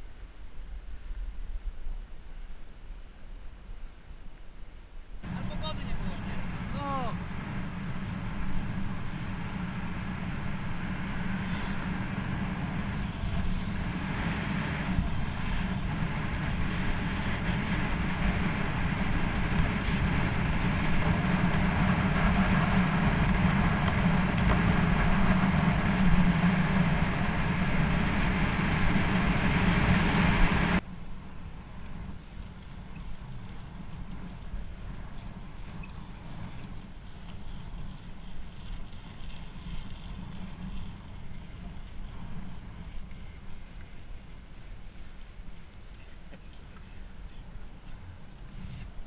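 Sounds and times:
bike tyres humming on asphalt: 0.0 - 49.0
wind buffeting microphone: 5.2 - 30.9.

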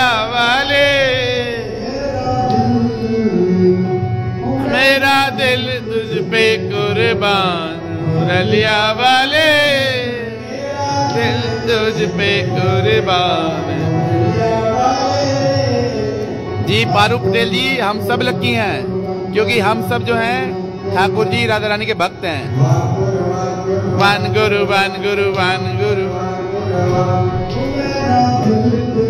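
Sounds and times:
instrumental backing: 0.0 - 29.0
person singing devotional song: 0.0 - 29.0.

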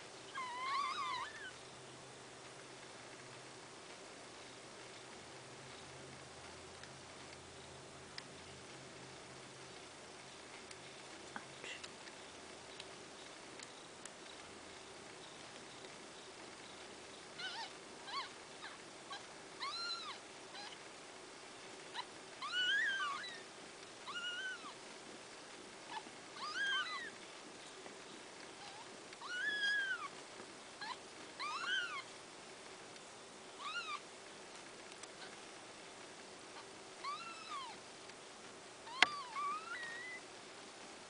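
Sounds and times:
newborn kittens mewing: 0.3 - 1.6, 17.4 - 20.9, 21.9 - 24.8, 25.9 - 27.2, 28.6 - 30.2, 30.8 - 32.1, 33.6 - 34.1, 36.6 - 37.8, 38.8 - 40.2.

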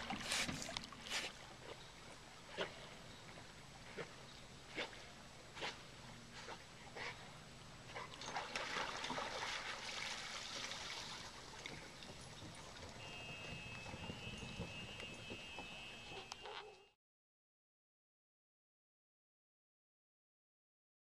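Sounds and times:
water splashing and dripping: 8.0 - 13.0.

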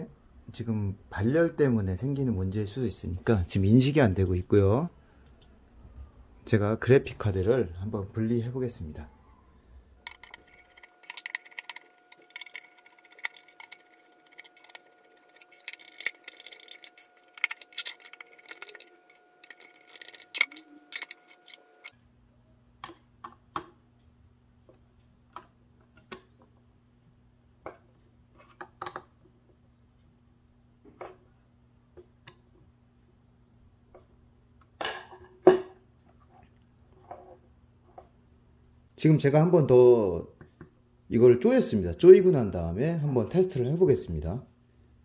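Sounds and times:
screwdriver clicking on screws: 10.0 - 21.9.

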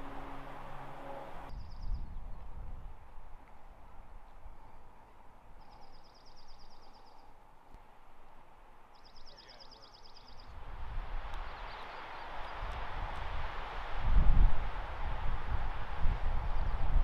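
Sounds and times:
wind on microphone: 1.4 - 4.6, 10.5 - 17.0.

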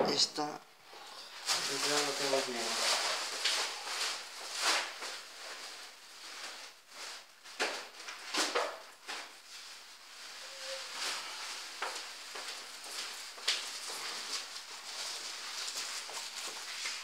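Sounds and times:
rustling and handling noises: 0.8 - 17.0
faint squeak: 10.3 - 11.4.

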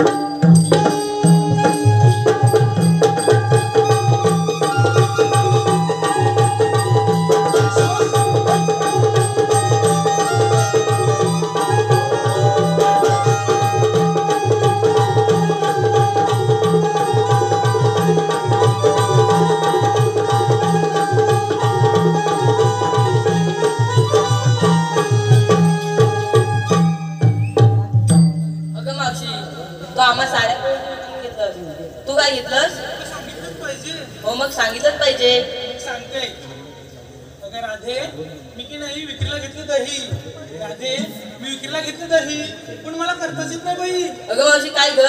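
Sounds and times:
hand drum beating a rhythm: 0.0 - 28.6.

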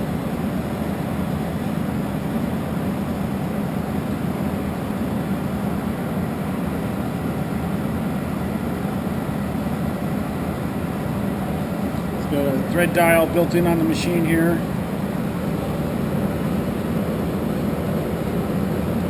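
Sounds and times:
lathe running: 11.1 - 19.0.

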